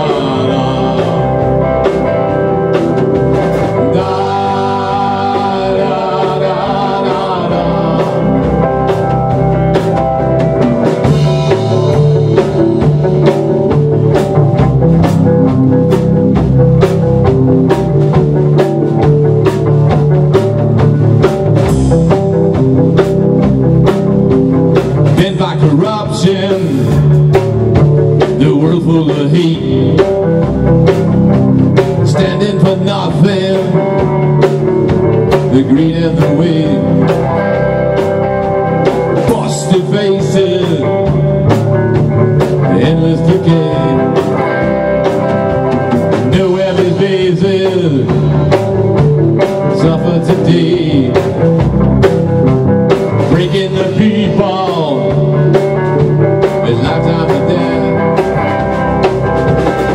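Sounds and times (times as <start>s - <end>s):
drum kit steady beat: 0.0s - 59.9s
electric guitar: 0.0s - 59.9s
live rock band playing: 0.0s - 59.9s.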